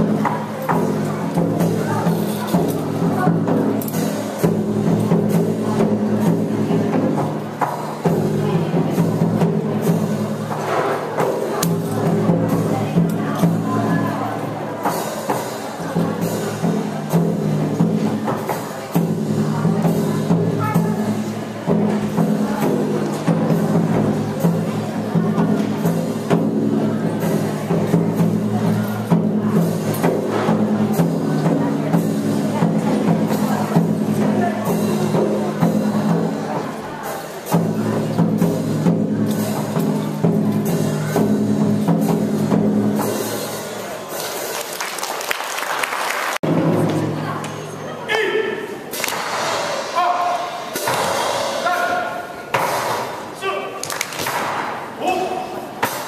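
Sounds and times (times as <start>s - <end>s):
sharp percussion strikes: 0.0s - 44.7s, 46.4s - 56.0s
sharp percussive hits: 48.9s - 55.0s, 55.7s - 56.0s.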